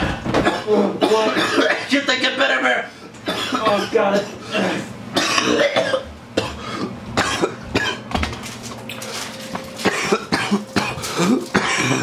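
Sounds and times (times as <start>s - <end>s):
person coughing: 0.4s - 1.9s, 3.3s - 8.1s, 9.8s - 12.0s.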